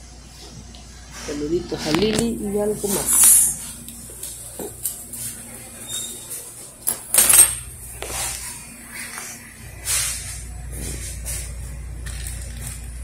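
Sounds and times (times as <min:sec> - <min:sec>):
faint steady hum: 0:00.0 - 0:13.0
dishes and cutlery clattering: 0:06.8 - 0:07.7.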